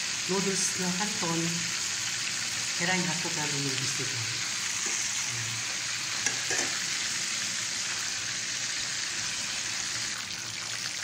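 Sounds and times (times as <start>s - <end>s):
food sizzling in hot oil: 0.0s - 11.0s.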